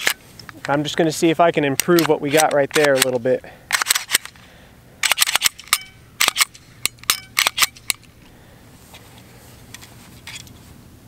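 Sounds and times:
pistol metallic clicks: 1.7s - 4.4s, 5.0s - 8.2s.

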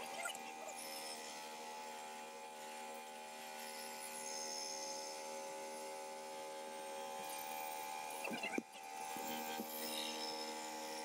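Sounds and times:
bandsaw humming: 0.0s - 11.0s.

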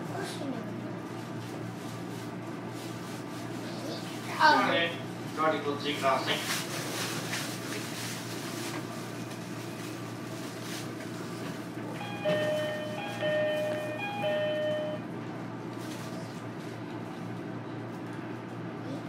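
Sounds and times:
train car hum: 0.0s - 19.0s
falling two-note door chime: 12.0s - 15.0s.

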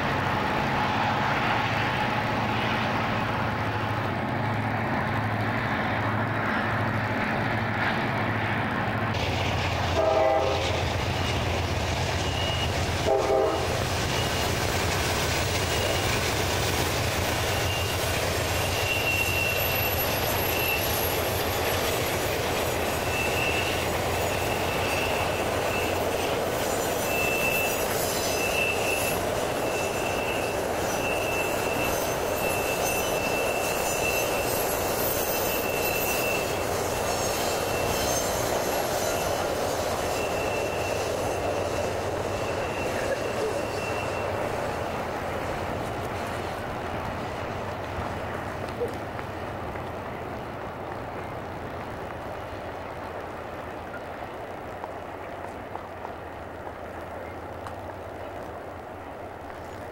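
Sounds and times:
diesel train engines running: 0.0s - 59.9s
train wheel squeal: 9.2s - 49.0s
train horn blasts: 9.9s - 10.7s, 12.3s - 13.8s.

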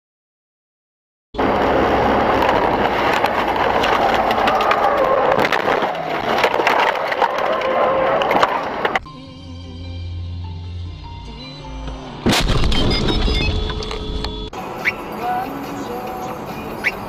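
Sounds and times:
car crash crunching and cracking: 1.4s - 9.0s, 12.2s - 14.2s.

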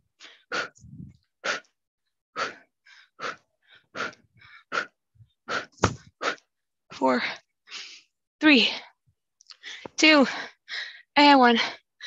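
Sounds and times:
woman breathing hard: 2.3s - 6.5s, 9.6s - 11.1s.

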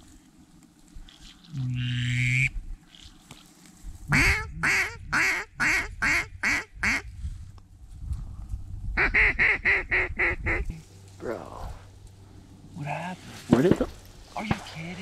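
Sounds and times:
duck call quacks: 1.8s - 3.1s, 4.1s - 7.0s, 9.0s - 10.8s.

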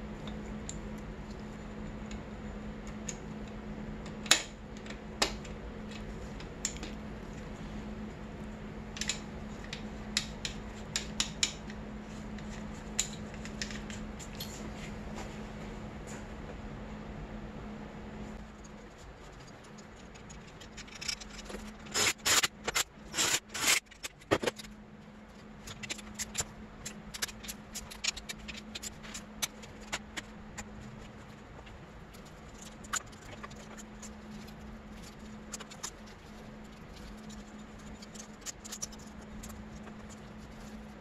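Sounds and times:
steady low hum: 0.0s - 41.0s
light metal ticks and scrapes: 18.4s - 24.8s
metal parts clinking: 20.0s - 24.7s.

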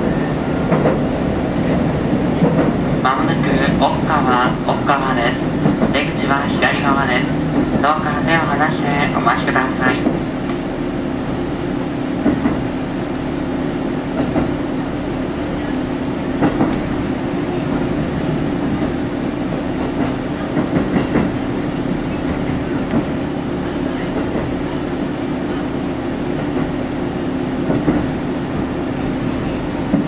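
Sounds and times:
train running gear drone: 0.0s - 30.0s
wheels clacking over rail joints: 27.6s - 30.0s.

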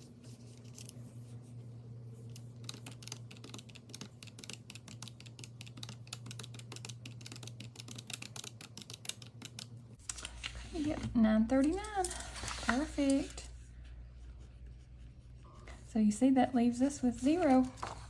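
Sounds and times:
calculator keys clicking: 2.6s - 9.7s.

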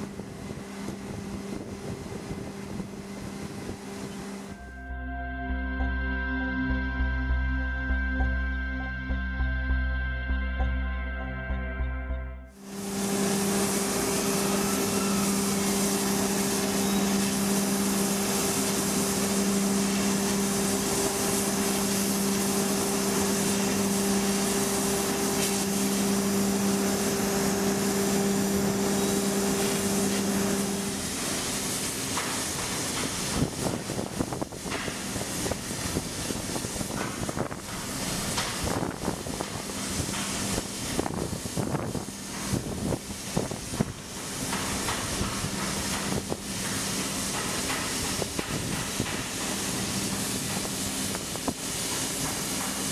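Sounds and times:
low hum: 0.0s - 16.8s
cutting torch hissing: 12.6s - 52.9s.

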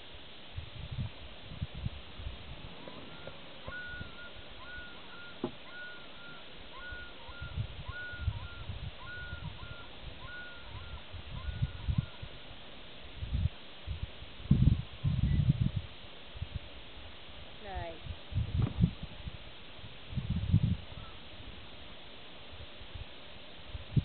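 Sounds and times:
wind rumble on microphone: 0.0s - 21.8s, 22.5s - 24.0s
bird chicks peeping: 3.0s - 12.3s.

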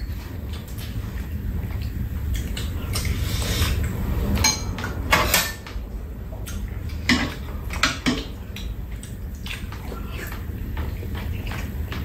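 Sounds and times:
utensils clinking on bowls: 4.4s - 5.8s.

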